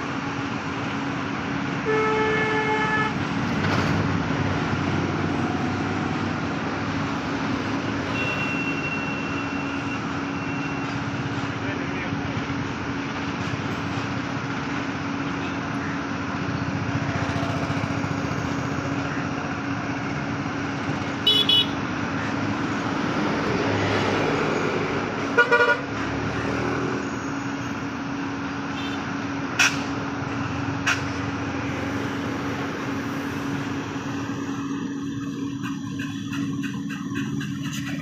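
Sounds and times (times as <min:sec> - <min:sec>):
freight train rumbling: 0:00.0 - 0:27.2, 0:28.0 - 0:38.0
train horn toots: 0:01.8 - 0:03.2, 0:25.3 - 0:25.8.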